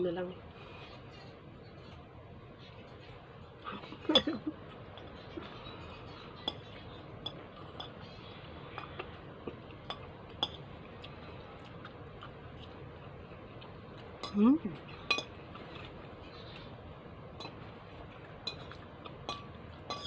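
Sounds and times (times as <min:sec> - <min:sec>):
fork clinking on plate: 0:06.4 - 0:08.0, 0:15.0 - 0:15.4, 0:18.4 - 0:20.0.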